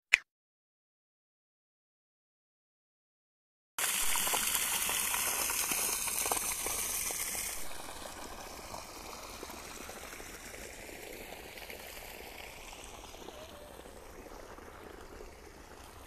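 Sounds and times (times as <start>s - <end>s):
water gushing from a pipe: 3.8s - 16.0s
water running through channels: 3.8s - 16.0s.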